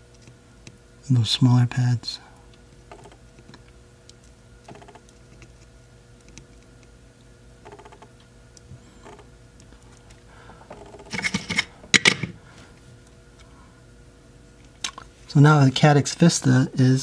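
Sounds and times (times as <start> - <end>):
faint steady hum: 0.0 - 17.0
tools clattering: 11.1 - 12.3.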